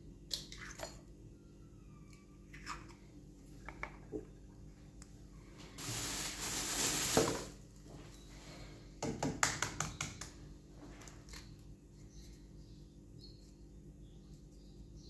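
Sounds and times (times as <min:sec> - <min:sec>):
rustling: 0:05.6 - 0:07.6.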